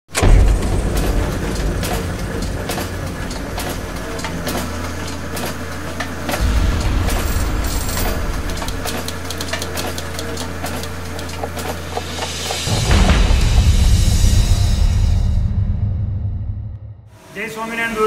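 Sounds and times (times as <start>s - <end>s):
sharp clicks and clanks: 0.1s - 13.7s
low mechanical rumble: 0.1s - 17.5s.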